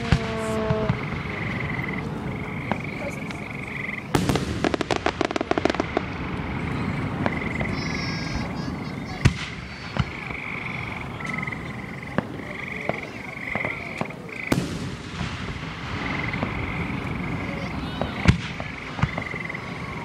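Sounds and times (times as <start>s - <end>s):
firework bang: 0.0s - 1.8s, 4.1s - 10.5s, 12.1s - 20.0s
firework booms: 0.0s - 20.0s
rapid firework crackling: 0.0s - 20.0s.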